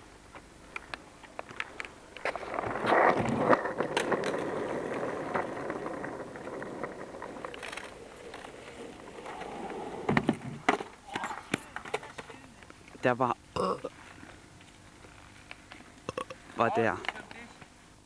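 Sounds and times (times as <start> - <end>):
skateboard wheels rolling on asphalt: 0.3 - 11.1.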